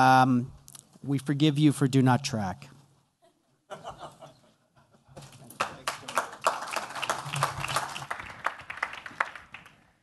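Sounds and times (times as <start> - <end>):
audience applause: 5.3 - 9.9.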